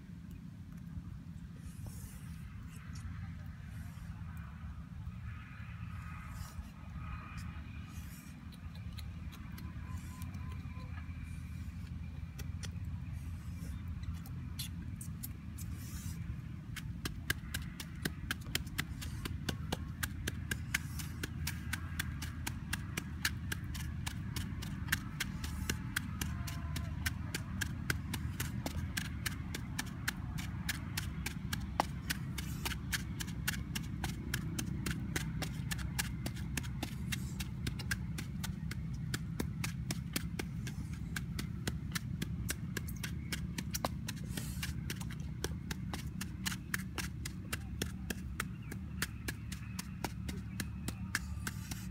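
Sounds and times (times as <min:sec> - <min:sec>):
steady low rumble: 0:00.0 - 0:51.9
wooden pestle pounding taps: 0:16.8 - 0:51.9.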